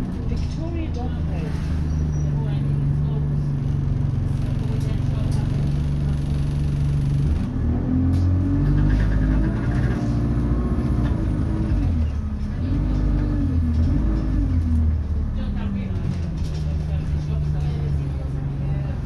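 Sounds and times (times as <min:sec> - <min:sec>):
bus engine accelerating: 0:00.0 - 0:19.0.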